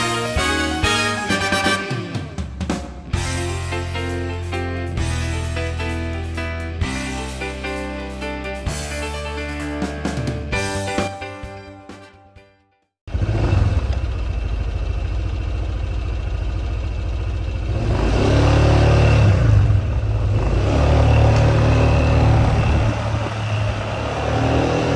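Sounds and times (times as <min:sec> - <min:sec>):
scooter engine revving: 0:13.1 - 0:24.9.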